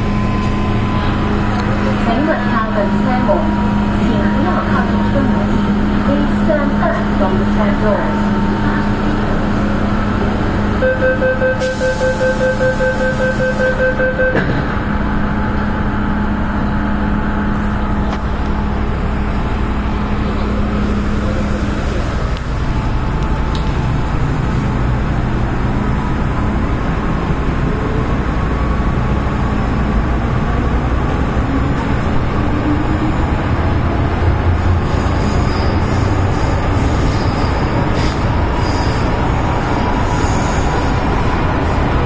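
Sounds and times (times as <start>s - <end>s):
train running noise and hum: 0.0s - 42.0s
door-warning beeps: 10.8s - 14.5s.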